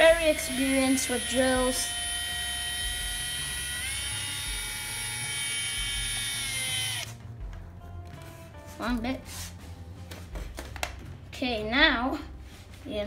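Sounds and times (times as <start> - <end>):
cordless drill motor whine: 0.0 - 7.1.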